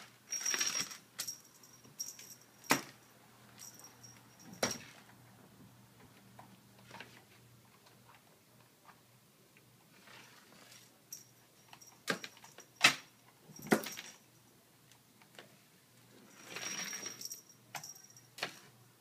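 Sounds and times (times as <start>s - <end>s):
rustling metallic rattle: 0.0s - 5.1s, 16.2s - 18.3s.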